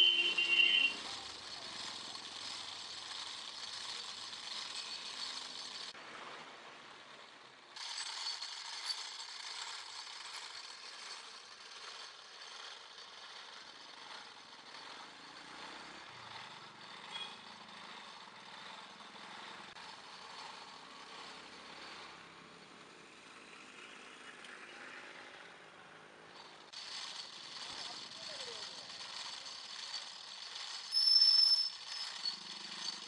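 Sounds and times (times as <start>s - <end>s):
rope-spinning wheel gears running: 0.0s - 33.0s.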